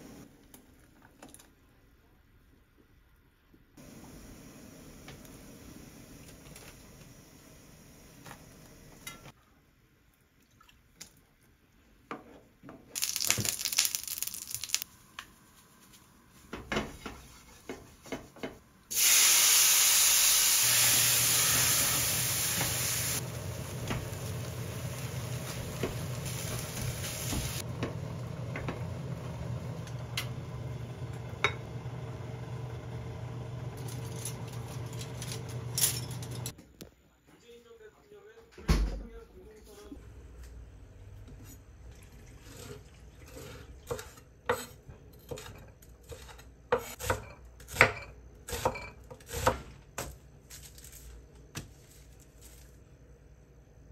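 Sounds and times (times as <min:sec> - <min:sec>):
food sizzling in frying pan: 0:13.0 - 0:14.9, 0:18.9 - 0:29.7
small kitchen clicks: 0:33.8 - 0:36.9.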